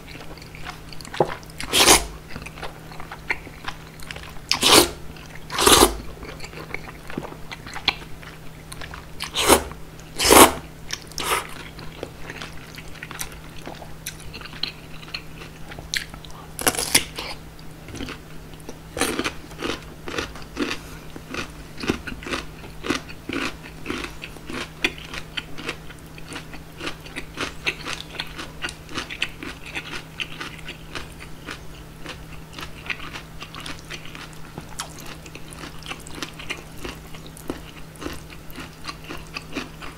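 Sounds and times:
chewing with mouth clicks: 0:00.0 - 0:39.9
noodle slurping: 0:01.6 - 0:02.1, 0:04.5 - 0:06.0, 0:09.2 - 0:10.6, 0:11.2 - 0:11.6.

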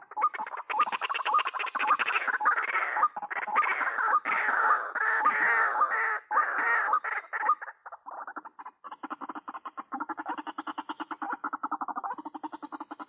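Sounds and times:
rapid bird croaking: 0:00.0 - 0:13.0
harsh bird cries: 0:01.8 - 0:07.6.

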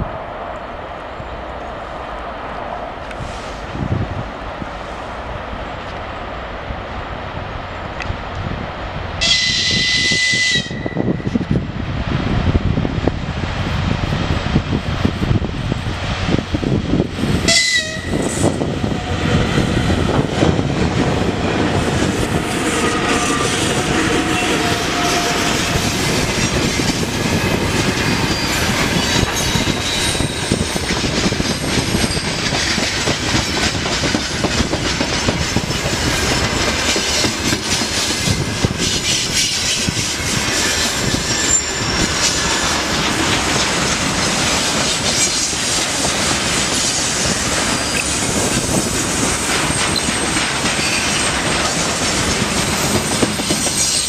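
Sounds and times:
electric locomotive passing: 0:00.0 - 0:54.0
train wheels rumbling and clacking: 0:00.6 - 0:54.0
thin squealing tones: 0:27.8 - 0:30.7, 0:40.7 - 0:42.7.

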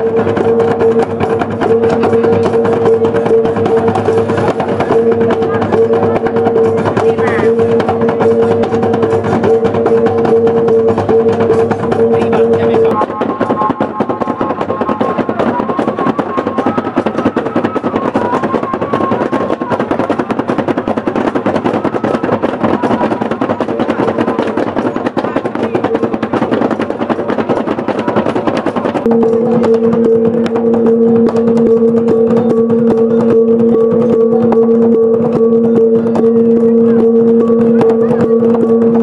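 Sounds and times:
higher held tone: 0:00.0 - 0:13.0, 0:29.0 - 0:39.0
steady lower pitched tone: 0:00.0 - 0:14.2, 0:29.0 - 0:39.0
barrel drums beaten fast: 0:00.0 - 0:39.0.

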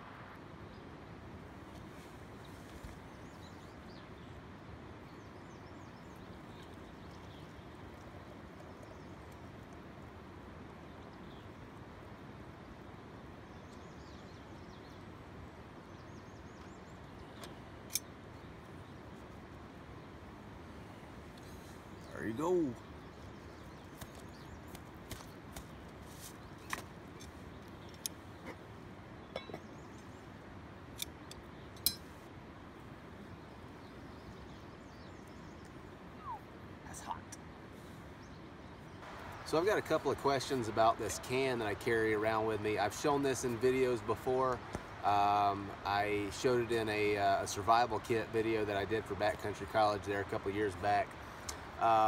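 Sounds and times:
outdoor background hiss: 0:00.0 - 0:52.0
bird trilling faintly: 0:35.0 - 0:36.6.

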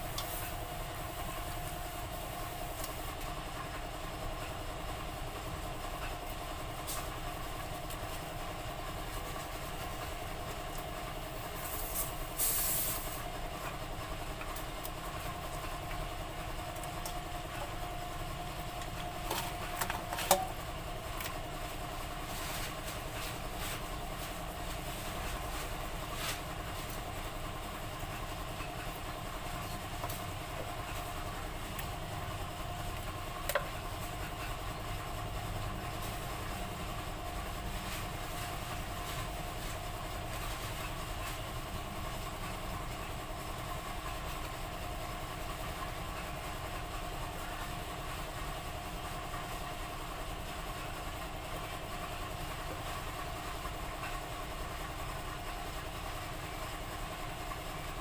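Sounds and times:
brief hiss: 0:11.7 - 0:13.2
machine hum: 0:13.1 - 0:58.0.

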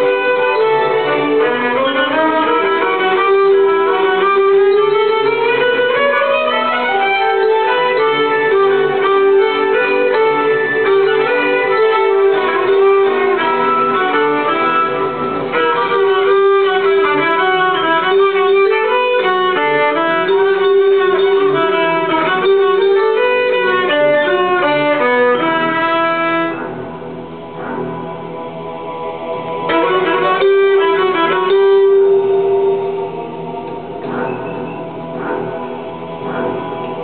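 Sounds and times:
violin playing fast melody: 0:00.0 - 0:26.9, 0:29.5 - 0:37.0
backing accompaniment track: 0:00.0 - 0:37.0.

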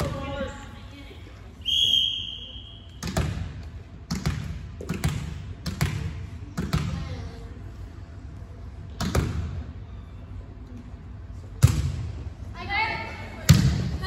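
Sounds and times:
referee's whistle: 0:01.6 - 0:03.0
ball bouncing on gym floor: 0:03.0 - 0:07.2, 0:08.9 - 0:09.6, 0:11.6 - 0:12.2, 0:13.4 - 0:14.0.

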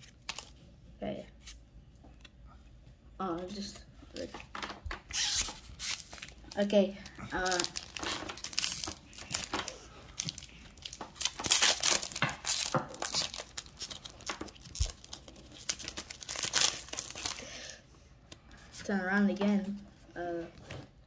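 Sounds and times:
foil wrappers tearing and crinkling: 0:05.1 - 0:17.8.

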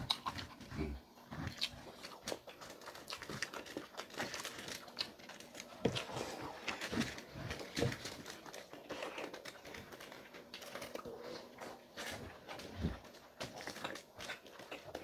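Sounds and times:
chewing and lip smacking: 0:00.0 - 0:15.0
foil crinkling: 0:01.9 - 0:15.0.

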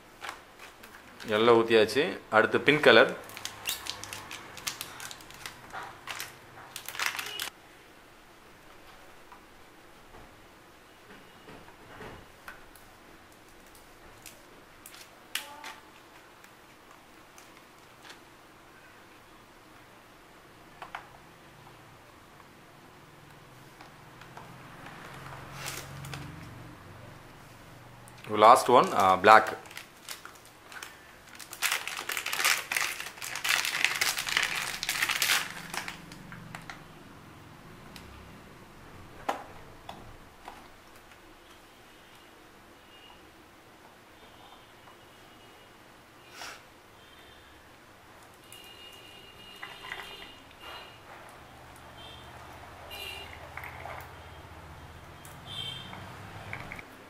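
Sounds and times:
plastic packaging crinkling: 0:02.6 - 0:07.5, 0:28.6 - 0:36.8.

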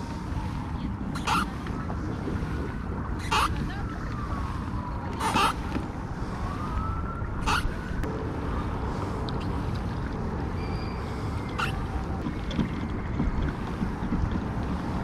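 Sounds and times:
water washing along kayak hull: 0:00.0 - 0:15.0
wind rumbling on microphone: 0:00.0 - 0:15.0.

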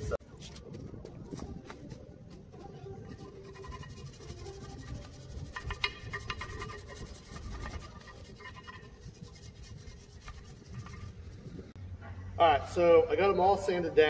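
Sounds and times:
sanding rusty metal: 0:02.9 - 0:11.8
sharp scrapes on metal: 0:03.1 - 0:11.8.

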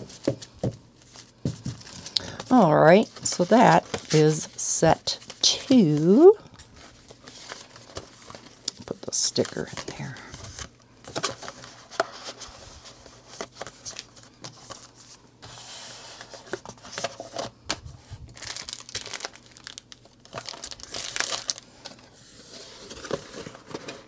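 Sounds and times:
cardboard packaging rustling: 0:00.0 - 0:24.0
plastic bag crinkling: 0:18.2 - 0:22.0.

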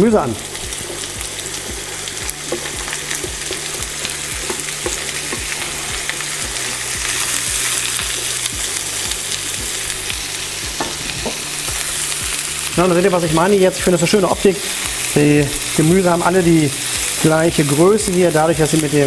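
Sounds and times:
vegetables sizzling in hot oil: 0:00.0 - 0:19.0
spatula stirring: 0:00.5 - 0:12.8.

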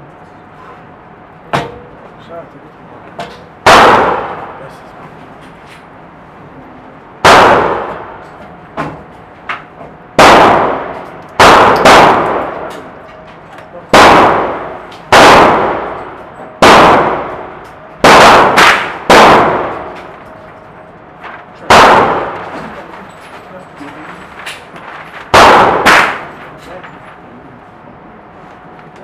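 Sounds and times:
gunshots echoing indoors: 0:03.6 - 0:04.8, 0:07.2 - 0:09.1, 0:10.1 - 0:13.1, 0:13.8 - 0:20.8, 0:21.6 - 0:23.0, 0:25.2 - 0:26.5.

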